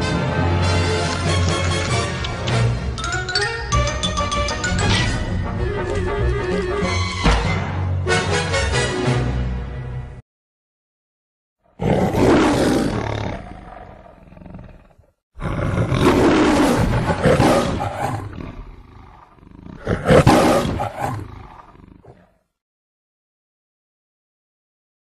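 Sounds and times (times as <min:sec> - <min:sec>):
lion roaring: 0:11.7 - 0:22.5.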